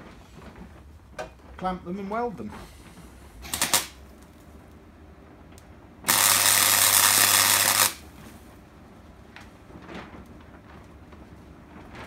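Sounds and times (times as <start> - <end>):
arc welding hiss: 3.4 - 4.0, 6.1 - 8.1.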